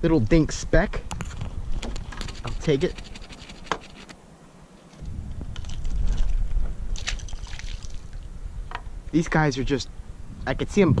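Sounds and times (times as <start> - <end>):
wind rumbling on microphone: 0.0 - 3.4, 5.0 - 11.0
fish splashing in water: 7.0 - 8.1.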